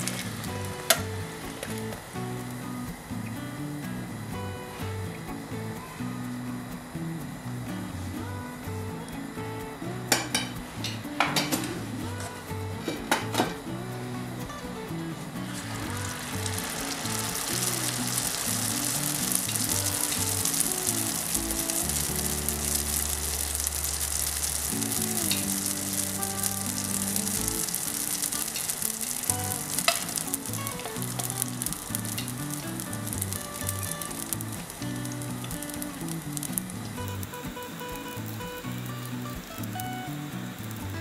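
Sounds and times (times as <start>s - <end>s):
dough sizzling in frying oil: 0.0s - 2.8s, 15.5s - 41.0s.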